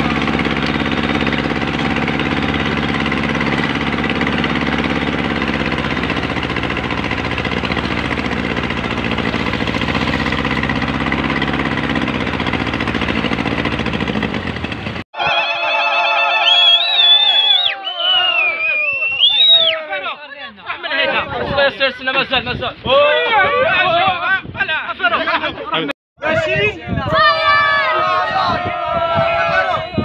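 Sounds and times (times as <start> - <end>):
boat engine running: 0.0 - 15.0.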